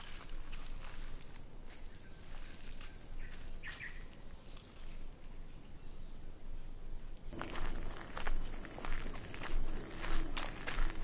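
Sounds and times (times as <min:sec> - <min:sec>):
footsteps on dirt and leaves: 0:00.0 - 0:04.0, 0:07.3 - 0:11.0
insects trilling: 0:00.0 - 0:11.0.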